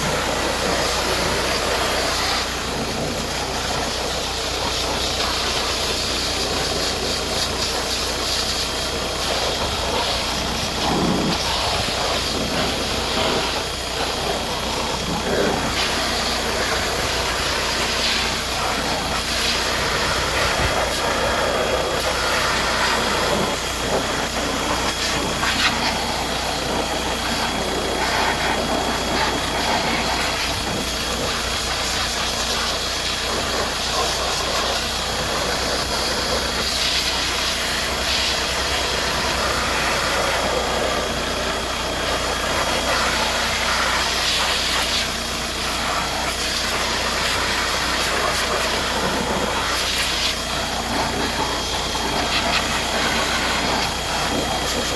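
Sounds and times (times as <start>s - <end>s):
car engine idling: 0.0s - 54.9s
pressure washer jet hissing: 0.0s - 54.9s.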